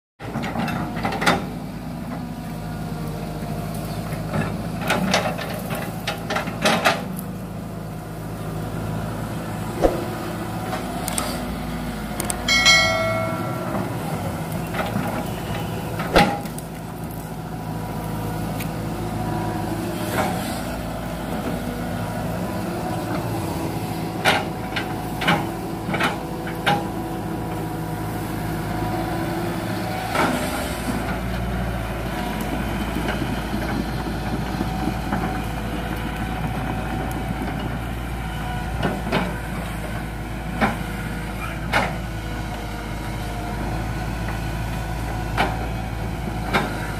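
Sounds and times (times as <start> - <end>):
excavator diesel engine running: 0.2 - 46.9
high ringing tone: 12.5 - 14.4
sharp knocks and cracks of wood: 16.1 - 16.7.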